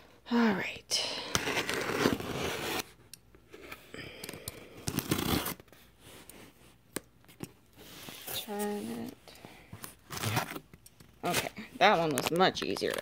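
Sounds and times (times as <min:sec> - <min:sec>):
scissors cutting packing tape: 0:04.5 - 0:05.6.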